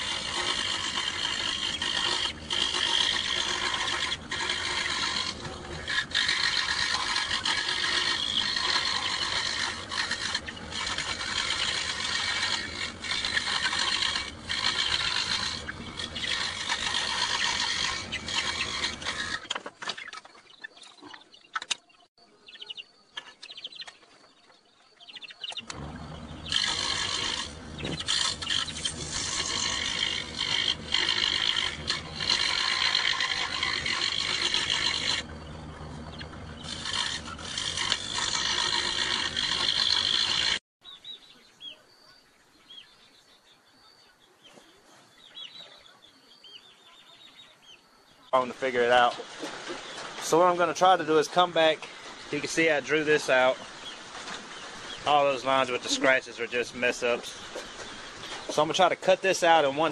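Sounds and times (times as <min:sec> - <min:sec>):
loud power tool running: 0:00.0 - 0:19.2, 0:25.7 - 0:40.6
faint bird chirps: 0:19.9 - 0:25.7, 0:40.8 - 0:48.5.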